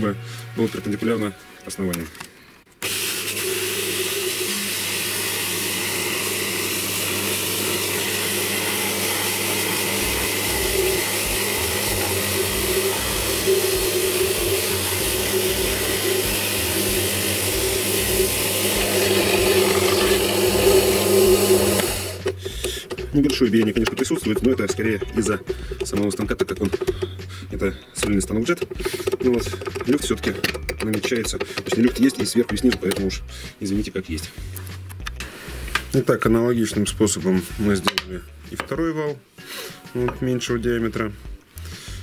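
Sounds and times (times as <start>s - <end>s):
drill press humming: 2.8s - 24.5s
sandpaper rasping against drum: 9.4s - 27.5s, 28.6s - 30.4s.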